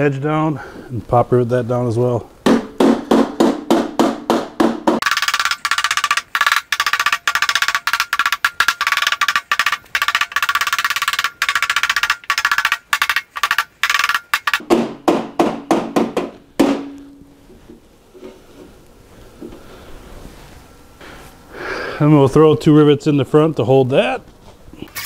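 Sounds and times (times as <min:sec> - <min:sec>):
hammer ringing on sheet metal: 0:14.6 - 0:17.3.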